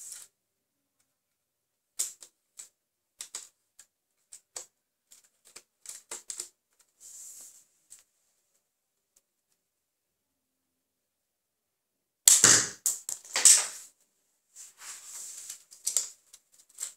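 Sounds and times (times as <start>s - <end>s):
scraping rustle: 14.6s - 16.9s.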